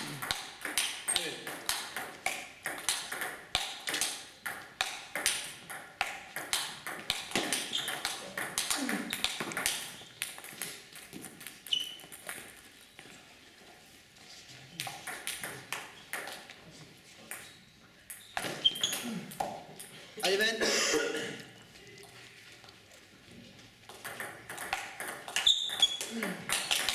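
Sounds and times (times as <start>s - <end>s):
table tennis balls clicking: 0.1s - 13.1s, 14.8s - 16.6s, 23.8s - 26.9s.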